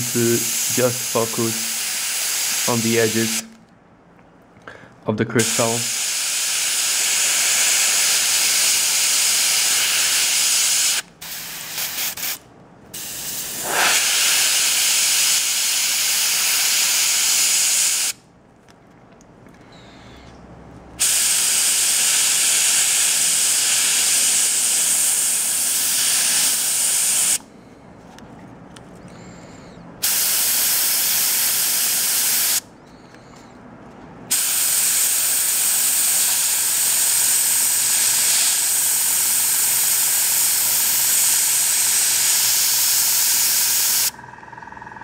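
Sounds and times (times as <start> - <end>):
airbrush spraying hiss: 0.0 - 3.5, 5.4 - 18.2, 21.0 - 27.4, 30.0 - 32.6, 34.3 - 44.1.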